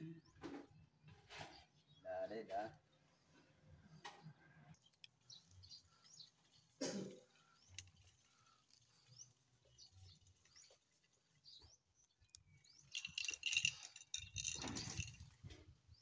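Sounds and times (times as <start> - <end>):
bucket of rock rattling and scraping: 12.7 - 15.7.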